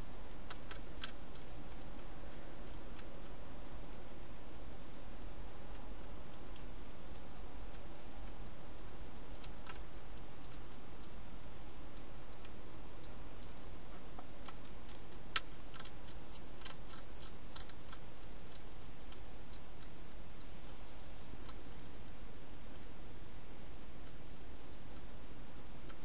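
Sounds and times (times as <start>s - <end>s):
hedgehog crunching dry food: 0.0s - 26.0s
steady hiss: 0.0s - 26.0s.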